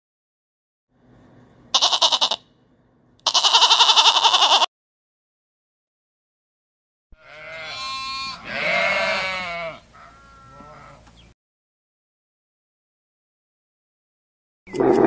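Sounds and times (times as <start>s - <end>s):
sheep bleating: 1.7s - 2.4s, 3.2s - 4.7s, 7.2s - 11.1s.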